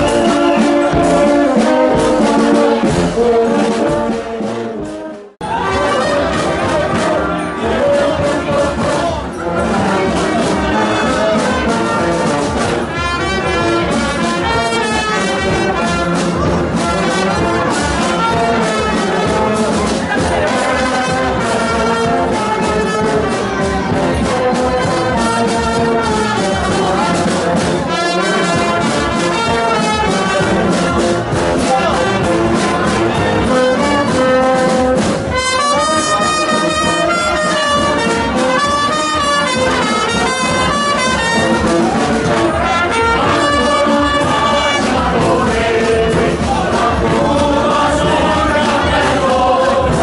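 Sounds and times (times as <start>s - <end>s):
brass band playing lively tune: 0.0s - 50.0s.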